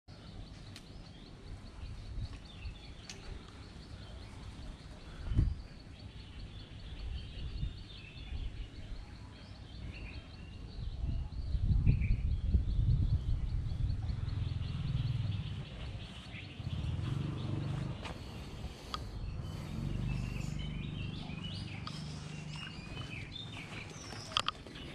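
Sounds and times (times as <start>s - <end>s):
small birds chirping: 0.0s - 24.9s
steady low rumble: 9.9s - 24.9s.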